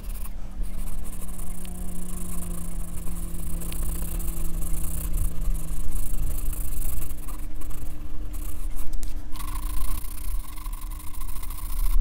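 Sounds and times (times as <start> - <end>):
pencil scratching on paper: 0.0 - 12.0
steady low hum: 0.0 - 12.0.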